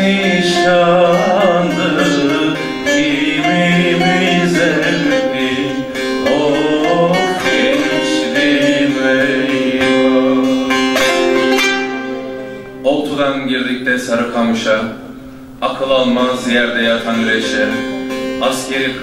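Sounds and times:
man singing folk song: 0.0 - 11.3
plucked lute: 0.0 - 19.0.

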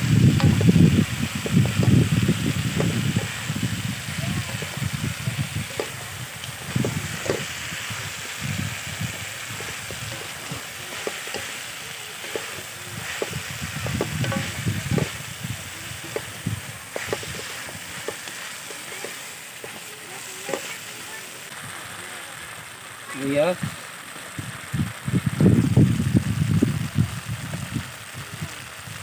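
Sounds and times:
chicken wings sizzling in a wok: 0.0 - 29.0
wooden spatula scraping a pan: 1.3 - 21.2.

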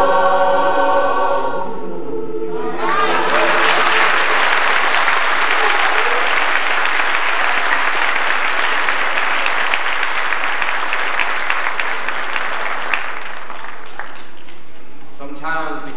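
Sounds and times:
audience applauding: 2.8 - 14.8.

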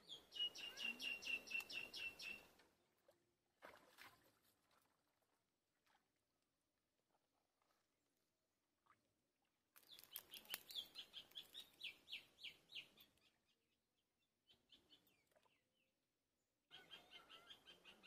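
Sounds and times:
bird chirping rapidly: 0.0 - 2.4.

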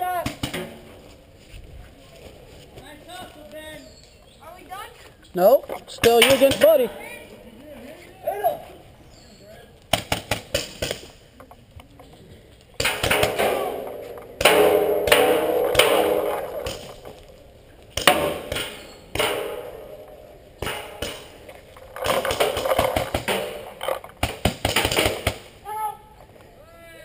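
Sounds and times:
paintballs pinging off steel drums: 5.9 - 6.8, 12.6 - 25.5
paintball gun firing: 9.9 - 11.1, 12.8 - 17.2, 17.9 - 25.5.

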